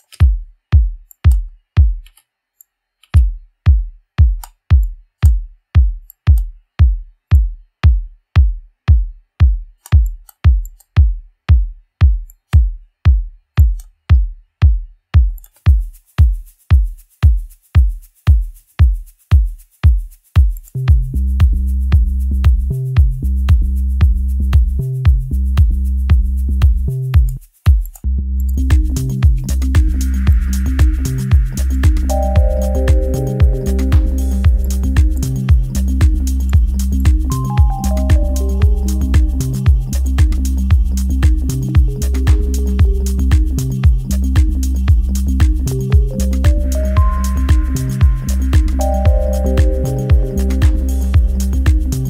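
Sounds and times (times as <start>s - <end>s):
deep house music: 15.7s - 27.8s, 28.5s - 52.0s
electronic kick drum hits: 28.7s - 52.0s.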